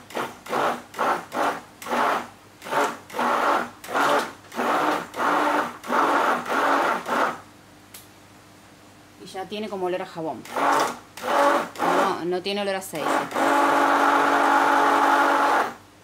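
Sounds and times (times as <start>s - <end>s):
electric stick blender bursts: 0.1s - 7.4s, 10.4s - 12.1s, 13.0s - 15.8s.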